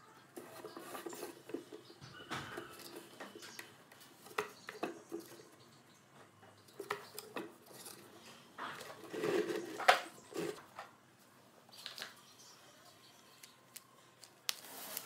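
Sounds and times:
cardboard scraping on plastic: 0.4s - 3.5s, 7.6s - 10.7s.

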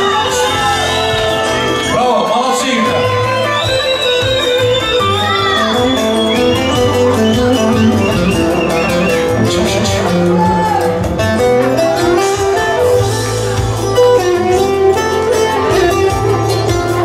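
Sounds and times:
loud dance music: 0.0s - 17.0s.

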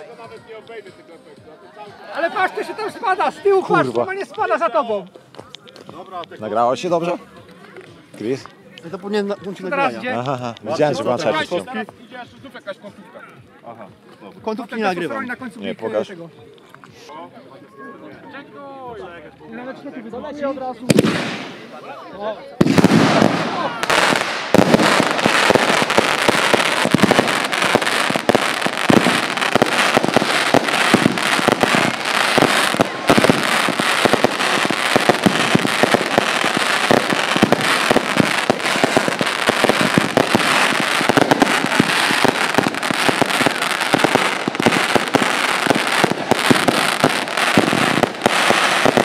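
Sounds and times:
fireworks firing rapid shots: 20.9s - 21.7s, 22.6s - 49.0s.

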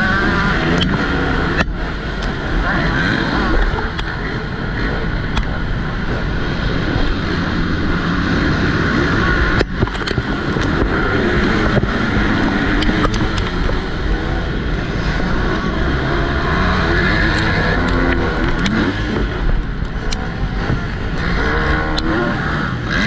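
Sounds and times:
motocross bike engine: 0.0s - 23.0s
wind noise on microphone: 0.0s - 23.0s
sharp clicks: 0.6s - 2.4s, 9.5s - 13.9s, 21.8s - 22.2s.

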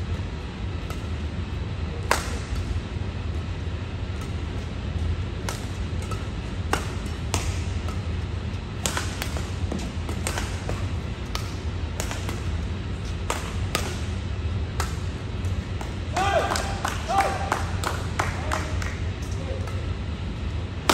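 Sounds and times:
steady low hum: 0.0s - 20.9s
racket hitting shuttlecock: 0.8s - 1.3s, 2.0s - 2.9s, 4.1s - 18.8s.

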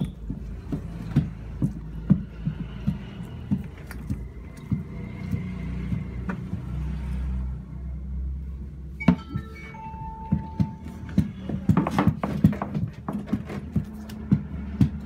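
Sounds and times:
stick knocking plastic basin: 10.4s - 15.0s.

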